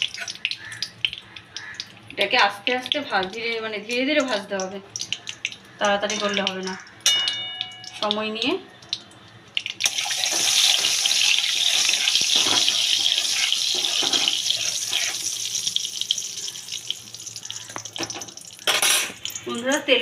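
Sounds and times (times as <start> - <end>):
hot oil sizzling in a pan: 9.6 - 20.0.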